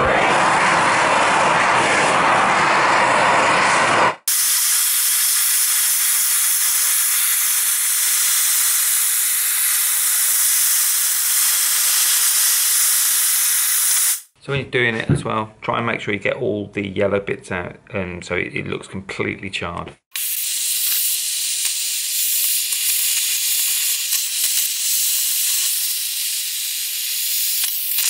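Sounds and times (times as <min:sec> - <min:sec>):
blowtorch flame hissing: 0:02.9 - 0:14.3, 0:20.2 - 0:28.0.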